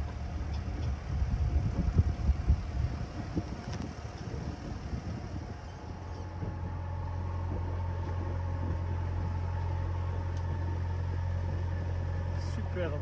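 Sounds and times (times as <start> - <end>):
diesel engine humming: 0.0 - 13.0.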